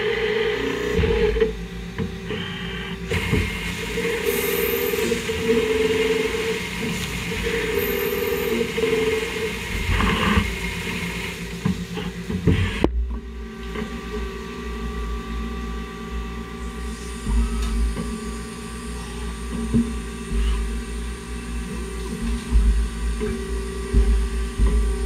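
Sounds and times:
lathe machine hum and whine: 0:00.0 - 0:25.0
coolant spray hissing: 0:03.1 - 0:12.0.

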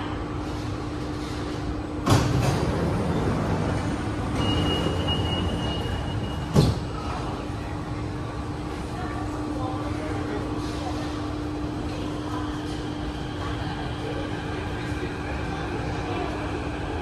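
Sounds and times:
stopped train hum: 0:00.0 - 0:17.0
sliding train doors opening: 0:00.4 - 0:07.3
steady high warning beep: 0:04.3 - 0:06.6
doors shutting with a thud: 0:06.4 - 0:06.9.

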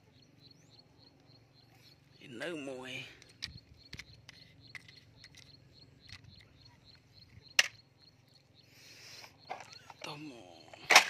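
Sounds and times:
plastic toy trucks clicking on wood: 0:03.1 - 0:07.8.

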